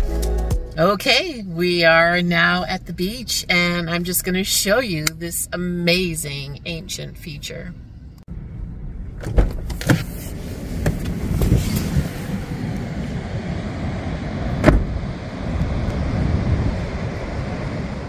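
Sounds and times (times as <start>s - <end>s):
car door shutting: 9.1s - 12.7s, 14.5s - 15.0s
wind and surf: 10.5s - 18.0s.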